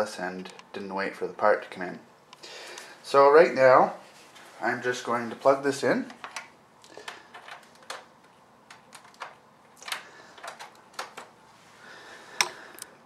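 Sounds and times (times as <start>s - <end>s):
cable connectors clicking: 6.1s - 11.3s.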